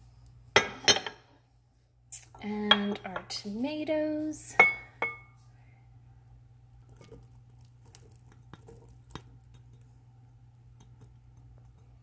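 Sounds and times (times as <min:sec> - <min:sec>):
tomatoes pattering into bowl: 0:06.8 - 0:09.9.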